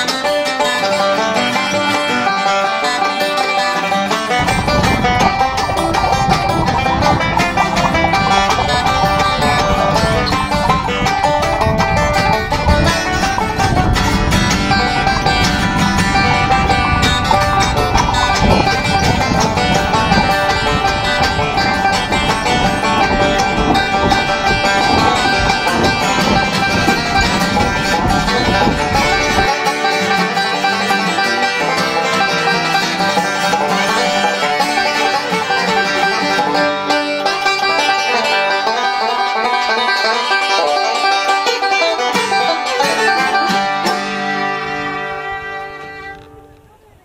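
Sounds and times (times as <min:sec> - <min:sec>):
banjo bluegrass music: 0:00.0 - 0:47.0
low rumble: 0:04.4 - 0:29.5.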